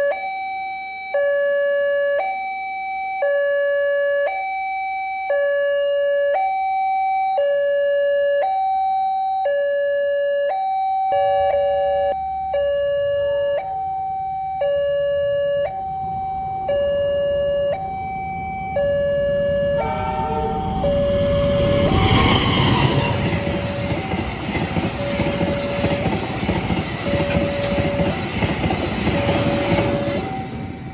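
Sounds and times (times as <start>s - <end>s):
two-tone crossing alarm: 0.0s - 30.9s
approaching train rumble: 14.8s - 30.9s.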